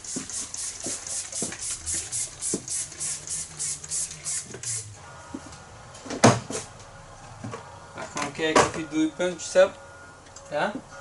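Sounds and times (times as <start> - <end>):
spray bottle hissing: 0.0 - 4.9.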